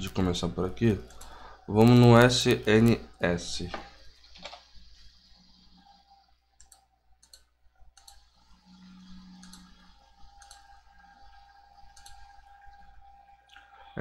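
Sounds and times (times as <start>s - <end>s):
low steady hum: 0.0s - 14.0s
computer mouse clicks: 1.0s - 3.0s, 4.3s - 4.7s, 6.6s - 8.3s, 9.3s - 11.2s, 11.9s - 12.4s.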